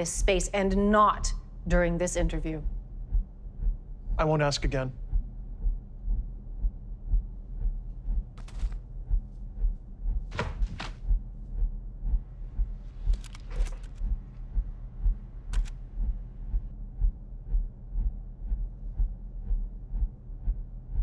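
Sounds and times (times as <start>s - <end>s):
low hum: 0.0s - 21.0s
heartbeat-like thumps: 0.2s - 21.0s.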